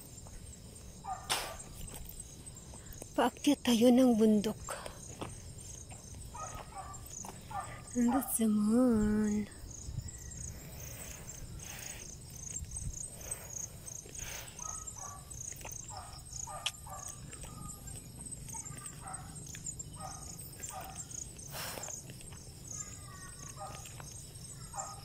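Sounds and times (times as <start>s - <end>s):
insects pulsing high-pitched: 0.0s - 25.0s
footsteps on grass: 4.8s - 8.0s.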